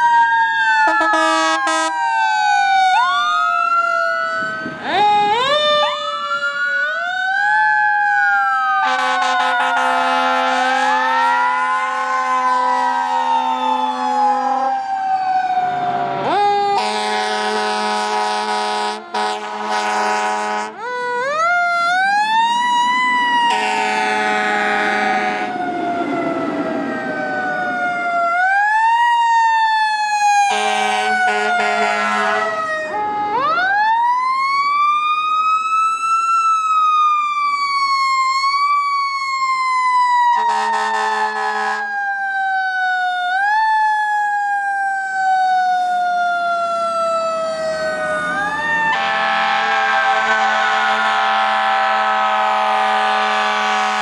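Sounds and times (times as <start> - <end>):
siren wailing: 0.0 - 54.0
fire engine air horn blasts: 0.8 - 2.1, 8.8 - 14.6, 15.9 - 20.9, 23.4 - 25.6, 30.4 - 32.8, 40.3 - 42.0, 48.9 - 54.0
short siren blips: 0.8 - 3.2, 8.8 - 20.7, 21.9 - 28.6.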